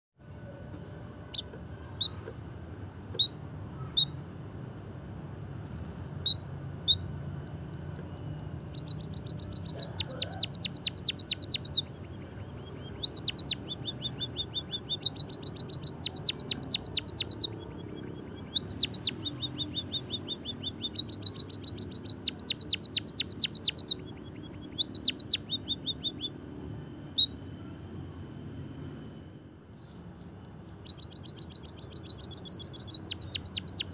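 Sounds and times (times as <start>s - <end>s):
bird chirping and trilling: 1.2s - 2.3s, 3.1s - 4.2s, 6.2s - 7.1s, 8.6s - 27.5s, 29.8s - 33.9s.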